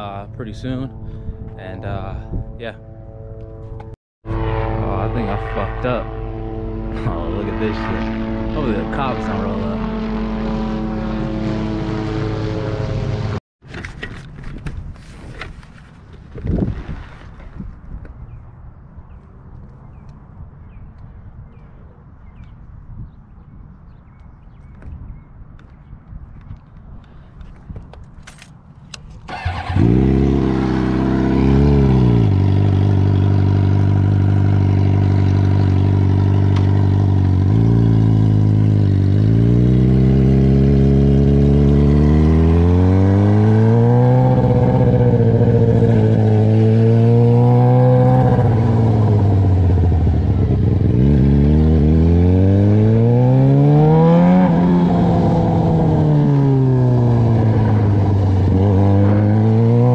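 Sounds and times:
motorcycle engine starting and revving: 29.1 - 59.9.

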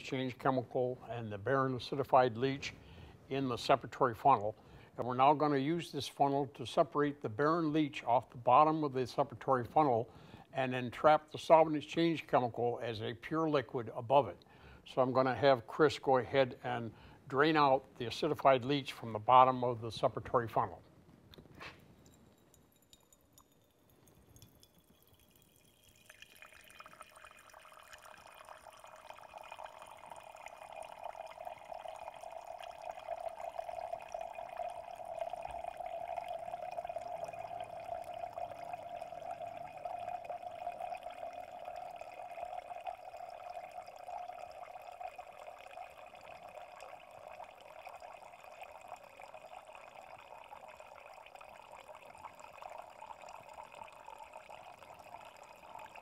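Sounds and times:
liquid trickling into glass beaker: 21.8 - 56.0.

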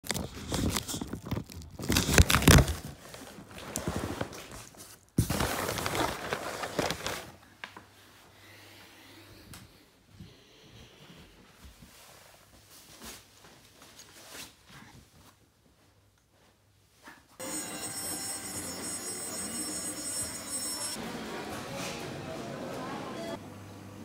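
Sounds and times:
rustling and crinkling: 0.0 - 8.0, 11.4 - 17.4.

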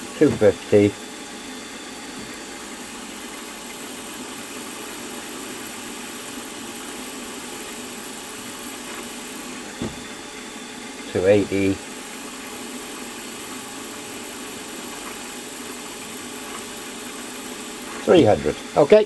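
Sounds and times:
milling machine spindle running: 0.0 - 19.0.

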